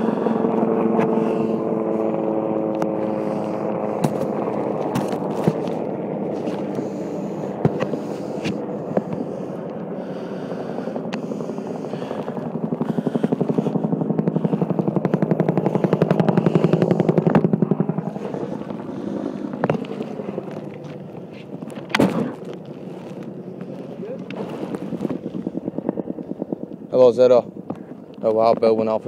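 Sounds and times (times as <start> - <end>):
helicopter rotor beating: 0.0 - 29.0
sharp cracks: 14.4 - 25.5.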